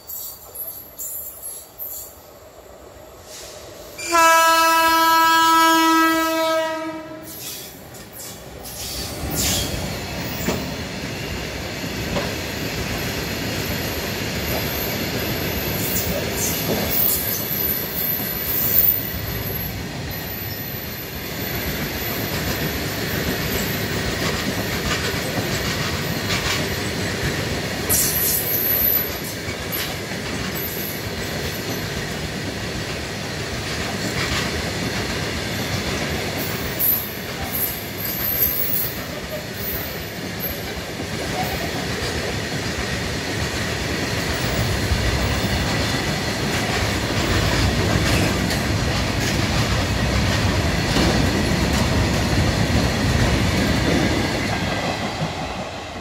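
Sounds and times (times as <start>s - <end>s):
locomotive horn blast: 4.0s - 7.4s
freight train wheels clattering: 21.4s - 56.0s.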